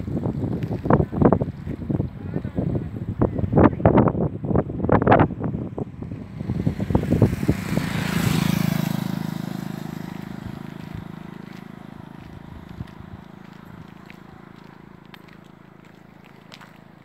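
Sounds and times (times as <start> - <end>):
wind buffeting microphone: 0.0 - 17.0
motorcycle passing by: 4.5 - 17.0.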